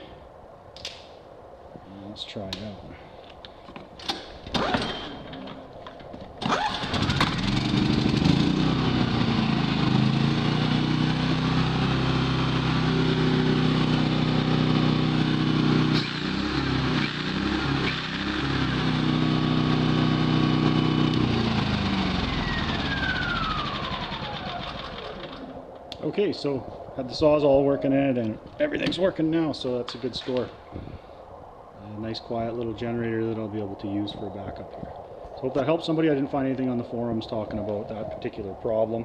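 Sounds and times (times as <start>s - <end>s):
generator pull-start: 4.0s - 5.6s, 6.4s - 9.4s, 15.9s - 25.6s
generator engine running: 6.4s - 25.6s.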